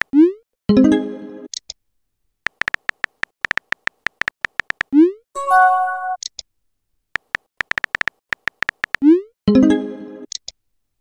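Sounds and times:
phone keyboard typing clicks: 2.5s - 4.9s, 7.2s - 9.0s
short synthesized chime: 5.4s - 6.2s.

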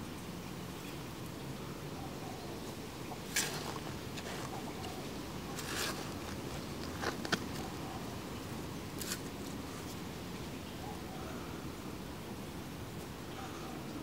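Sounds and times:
low background noise: 0.0s - 14.0s
trowel scraping soil: 3.2s - 7.7s, 9.0s - 10.0s.

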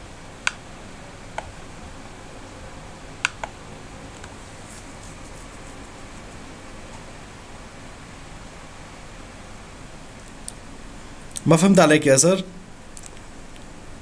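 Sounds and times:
steady faint hiss: 0.0s - 14.0s
computer mouse clicking: 3.2s - 3.6s.

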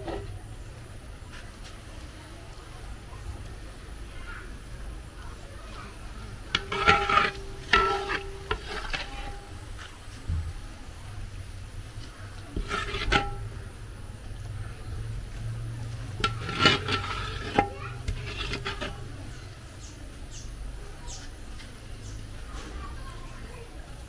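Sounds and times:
plate scraping metal pot: 6.4s - 9.9s, 12.5s - 13.7s, 16.1s - 19.4s.

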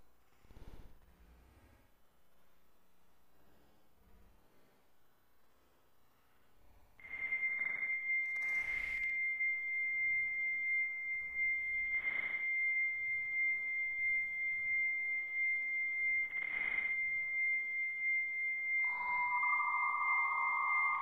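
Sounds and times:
lower steady tone: 6.2s - 21.0s
high modem answer tone: 7.0s - 21.0s.

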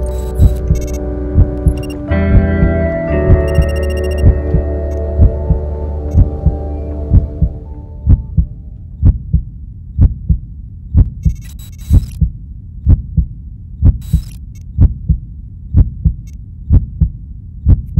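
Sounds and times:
crackling static bursts: 0.0s - 2.8s, 14.0s - 14.6s
slow heartbeat thumps: 0.0s - 17.9s.

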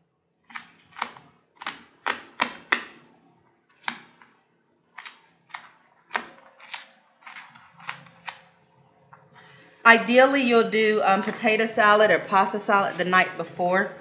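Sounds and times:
knife chopping on cutting board: 0.9s - 3.0s.

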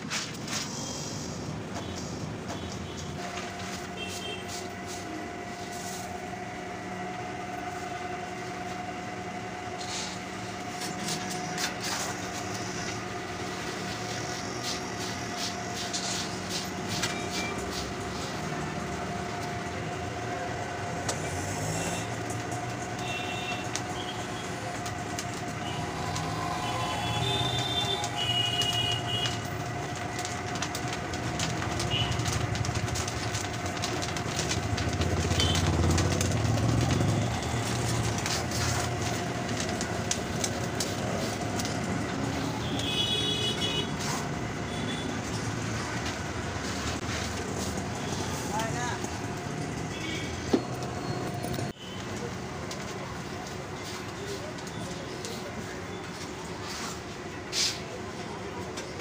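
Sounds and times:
steady humming drone: 0.0s - 32.1s.

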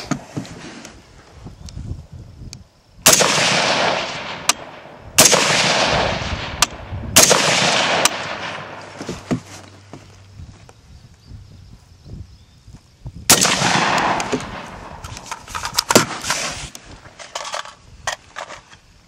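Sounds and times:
rifle shots with echo: 3.0s - 9.0s, 13.3s - 15.1s.

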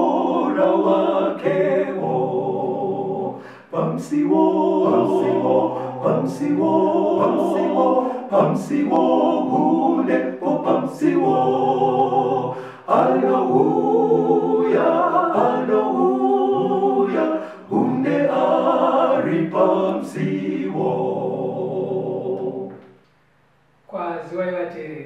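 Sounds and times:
choir singing a hymn: 0.0s - 22.9s.

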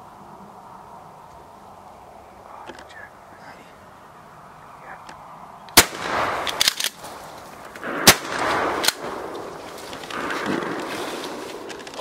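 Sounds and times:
weak sharp crack: 5.7s - 12.0s
shotgun shots: 5.8s - 7.2s, 7.8s - 11.7s.

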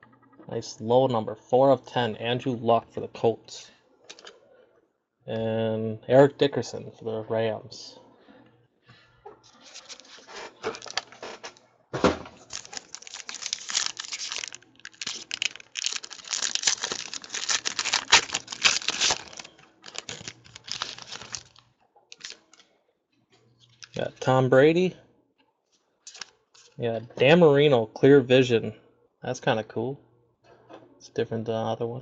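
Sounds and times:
wrapper crinkling: 9.4s - 11.6s, 12.4s - 22.6s, 23.6s - 24.2s, 26.1s - 26.8s.

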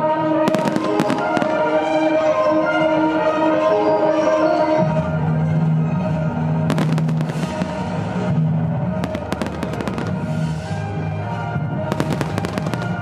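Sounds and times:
music with long held notes: 0.0s - 13.0s
fireworks crackling: 0.5s - 2.1s, 6.7s - 13.0s.

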